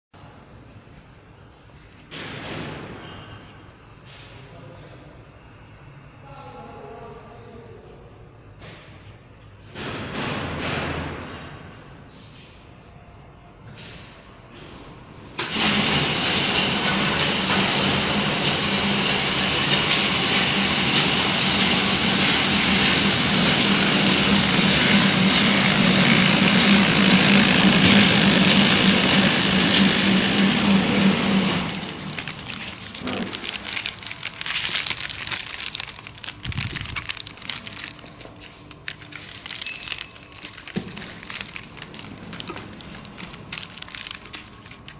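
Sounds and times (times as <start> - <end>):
machine clicks and rustles: 15.4 - 44.9
wrapping machine whirring: 15.4 - 44.9.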